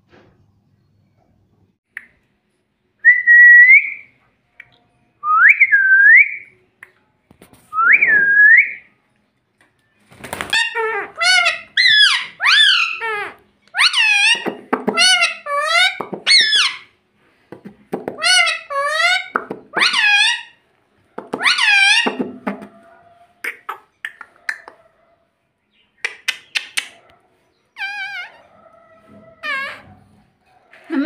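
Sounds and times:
shrill grating parrot chatter: 10.5s - 16.9s, 18.2s - 20.6s, 21.4s - 22.8s, 27.8s - 30.0s
parrot whistling: 10.6s - 16.9s.

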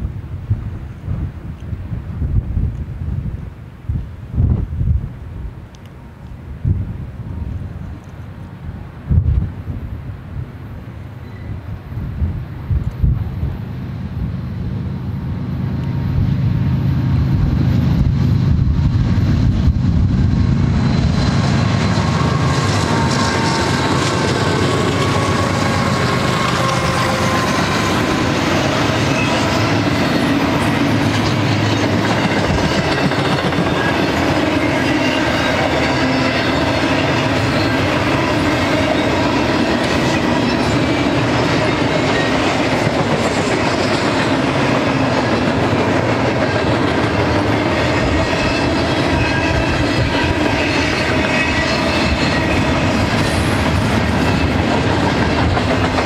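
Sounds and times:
diesel locomotive engine drone: 0.0s - 56.0s
train wheels clattering on rail: 17.1s - 56.0s.

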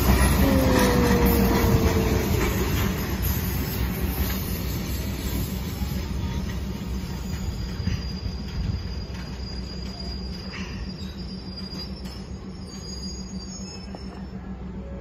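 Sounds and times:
train wheel clacks: 0.0s - 14.4s
train engine and wheel rumble: 0.0s - 15.0s.

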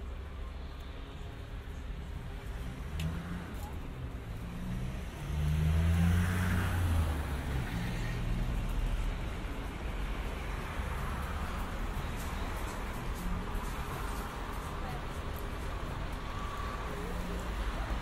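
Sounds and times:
vehicle engine accelerating past: 4.3s - 8.7s.

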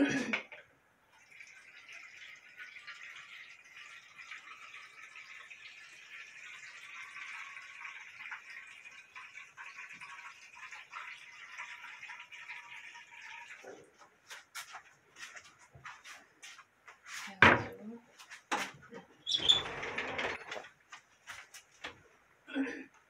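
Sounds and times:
water pouring into a glass dish: 1.1s - 14.4s.

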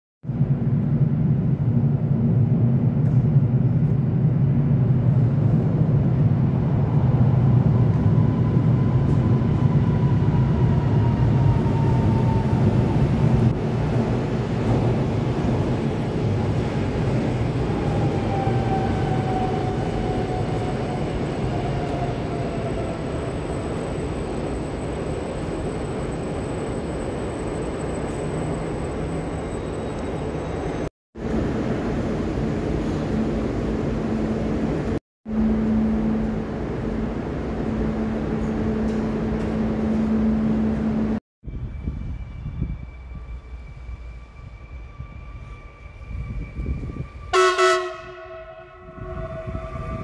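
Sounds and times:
train wheels rumbling on rails: 0.2s - 50.0s
train braking whine: 35.3s - 50.0s.

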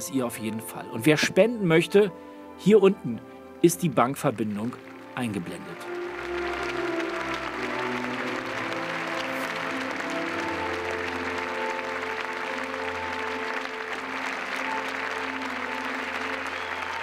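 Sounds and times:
music of long held notes: 0.0s - 17.0s
audience applauding: 4.2s - 17.0s.

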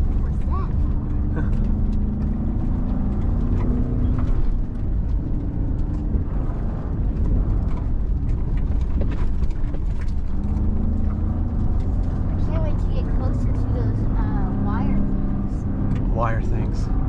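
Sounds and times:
truck knocks and rattles: 0.0s - 12.4s
truck engine under varying throttle: 0.0s - 17.0s.

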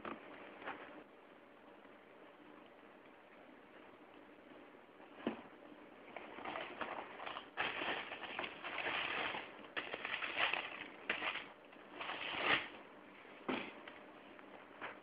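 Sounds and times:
tissue paper crinkling: 6.5s - 12.7s.

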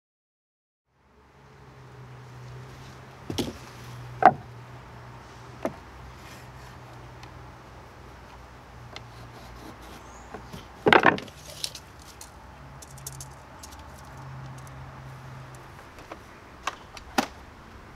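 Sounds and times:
wooden board knocks: 4.2s - 4.4s, 10.4s - 11.3s.

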